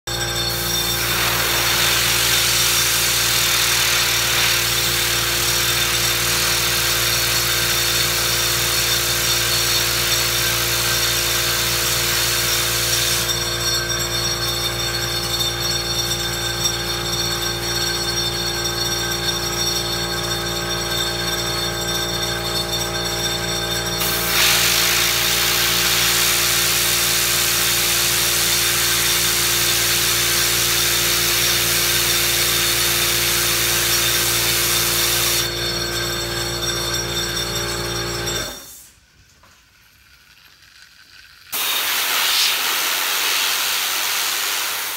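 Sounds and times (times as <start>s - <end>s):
compressed air hissing: 0.4s - 8.2s, 9.4s - 13.4s, 24.0s - 30.7s, 41.6s - 44.9s.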